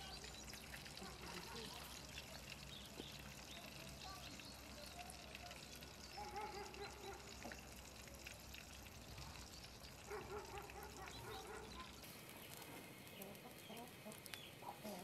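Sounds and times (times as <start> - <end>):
chickens clucking: 13.1 - 15.0.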